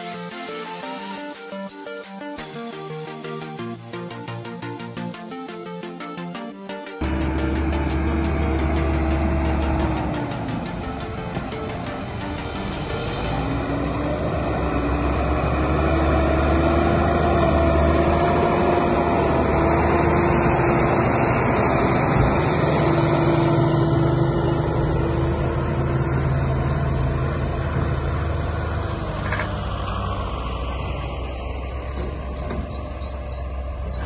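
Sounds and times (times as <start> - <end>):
tractor diesel engine droning: 7.0 - 34.0.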